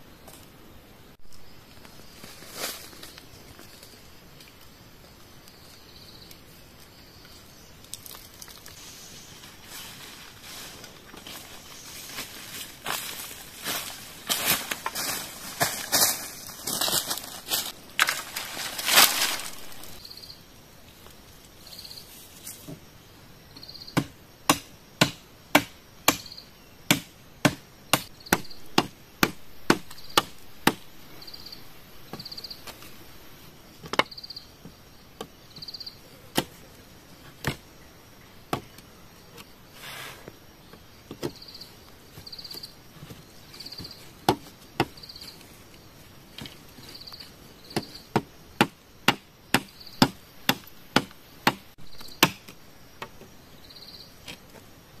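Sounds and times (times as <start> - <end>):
high insect chirp: 0.0 - 55.0
machete chopping bamboo: 24.0 - 26.3, 26.9 - 30.9, 36.3 - 36.6, 47.7 - 52.6.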